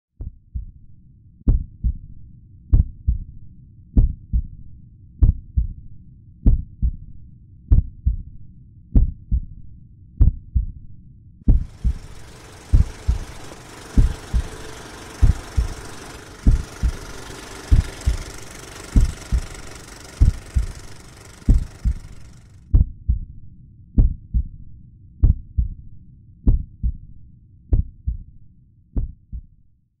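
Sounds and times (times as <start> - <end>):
slow low heartbeat: 0.2 - 0.9, 1.5 - 10.9, 11.5 - 12.1, 21.5 - 28.4, 29.0 - 29.6
steady whirring hiss: 11.5 - 22.5.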